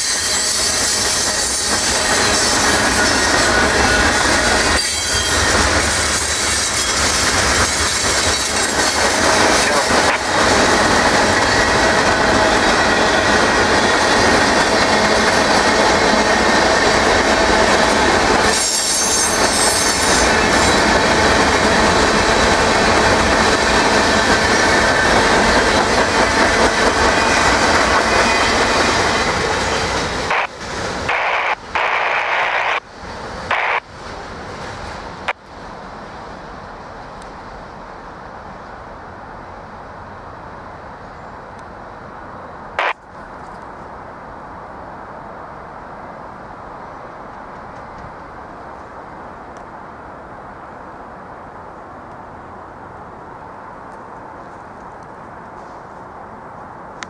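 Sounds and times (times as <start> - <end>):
high wheel squeal: 0.0 - 9.8, 18.4 - 20.9
train wheels rumbling on rail: 0.0 - 57.0.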